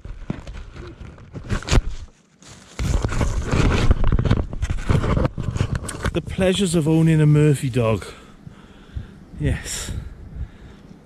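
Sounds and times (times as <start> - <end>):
rough rustling and buffeting: 0.0 - 11.0
camera handling knocks and scraping: 2.8 - 6.2.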